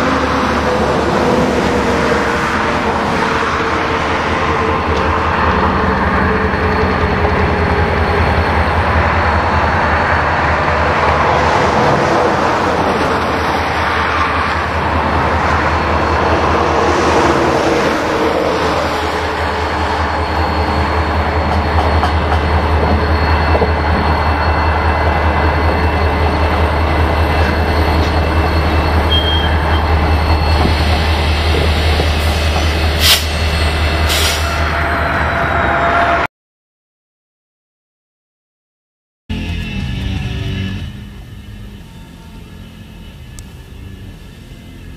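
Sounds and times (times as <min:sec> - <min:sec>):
steel wheels on rails: 0:00.0 - 0:36.1
diesel locomotive engine: 0:00.0 - 0:36.3, 0:39.3 - 0:44.9.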